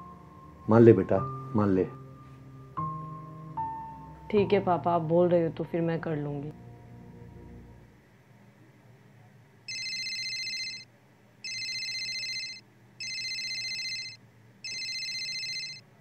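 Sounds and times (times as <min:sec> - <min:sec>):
phone ringtone trilling: 0:09.7 - 0:15.8.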